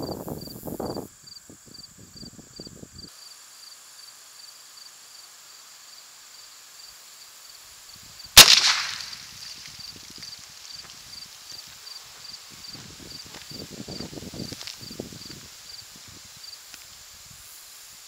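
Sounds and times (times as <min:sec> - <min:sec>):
crickets chirping: 0:00.0 - 0:18.0
rifle shot: 0:08.4 - 0:09.7.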